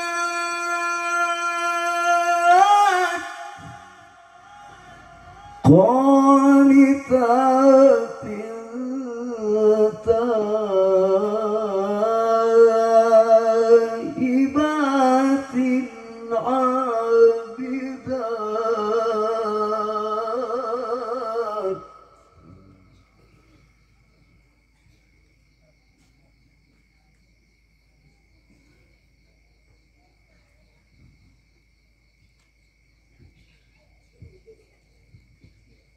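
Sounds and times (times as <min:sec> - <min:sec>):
man reciting melodically over pa: 0:00.0 - 0:23.7.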